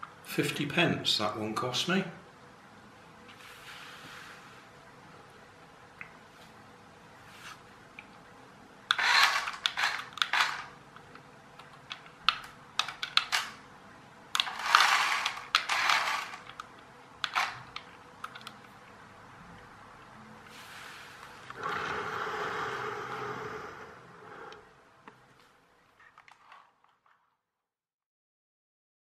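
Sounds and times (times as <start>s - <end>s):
toy car clicks: 8.9s - 10.7s, 11.9s - 13.6s, 14.4s - 18.6s
toy car motor whirring and rattling: 8.9s - 10.7s, 14.4s - 16.6s, 17.3s - 17.6s.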